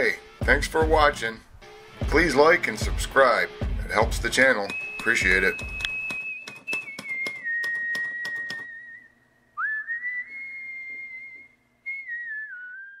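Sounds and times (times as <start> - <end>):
typewriter keys striking: 4.6 - 8.6
slow whistled tune: 4.7 - 13.0.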